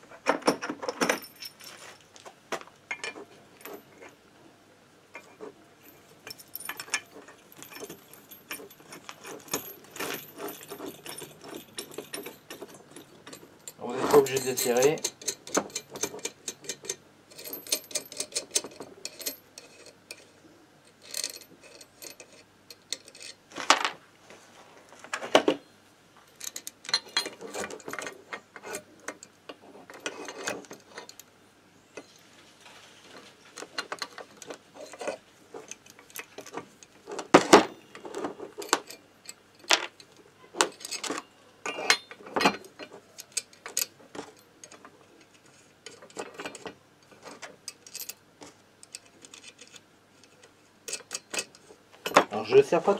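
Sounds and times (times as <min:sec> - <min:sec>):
metallic clicks and clinks of tool: 0:05.2 - 0:20.3, 0:20.9 - 0:23.4, 0:33.6 - 0:52.5.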